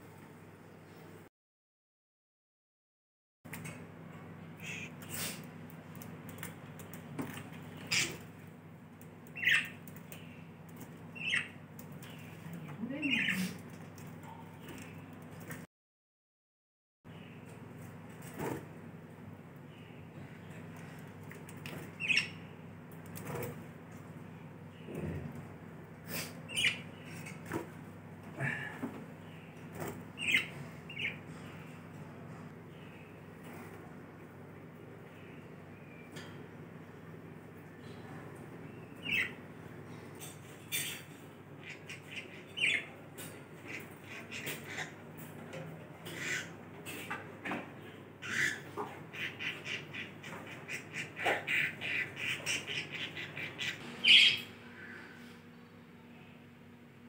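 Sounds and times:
budgerigars chirping: 9.3 - 9.8, 11.2 - 11.6, 26.5 - 27.4, 48.2 - 54.5
budgerigar chirping: 9.4 - 9.7, 11.2 - 11.5.

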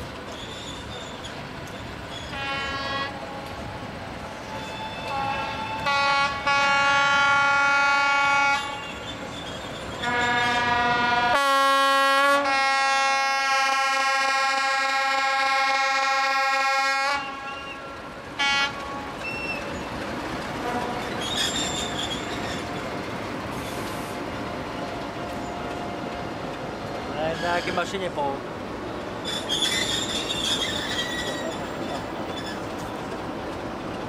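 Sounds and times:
locomotive horn blasts: 2.3 - 3.2, 4.7 - 8.9, 10.0 - 17.7, 18.4 - 19.1, 20.6 - 21.1
locomotive engines running: 17.9 - 34.0.

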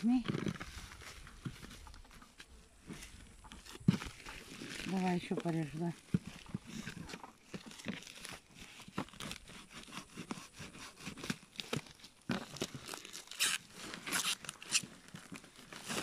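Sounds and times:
knife cutting plastic and cardboard: 6.2 - 15.0
tearing rasps: 6.2 - 16.0.

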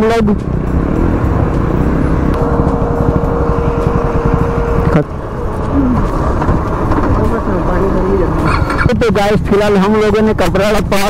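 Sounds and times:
steady tone: 0.0 - 8.5
motorcycle engine and wind rumble: 0.0 - 11.0.

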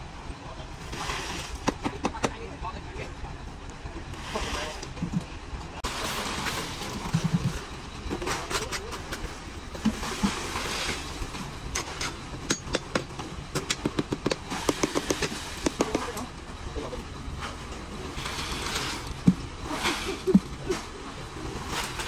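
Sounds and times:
steel bar clicking and knocking: 11.8 - 16.0.

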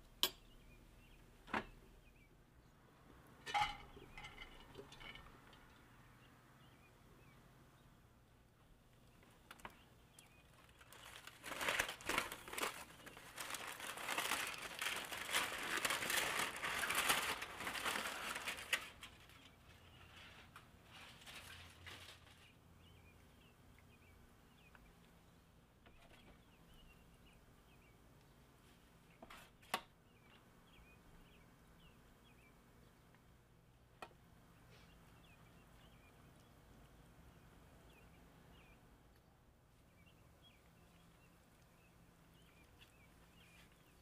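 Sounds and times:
aluminium foil crinkling: 9.4 - 22.6.

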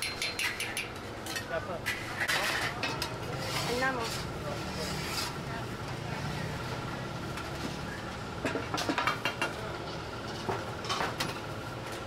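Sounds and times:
steady background noise: 0.0 - 12.0
metal spatula scraping a pan: 1.9 - 5.4.

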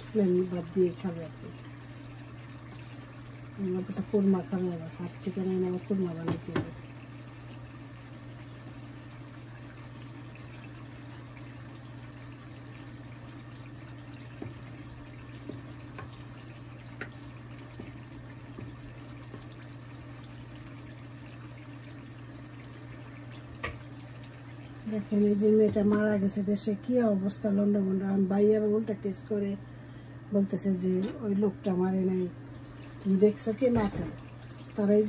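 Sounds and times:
sauce simmering in a pan: 0.0 - 27.2
steady low hum: 0.0 - 35.0.

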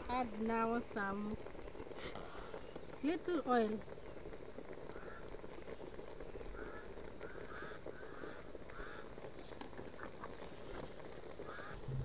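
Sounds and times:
low background noise: 0.0 - 12.0
honking bird calls: 11.4 - 12.0.

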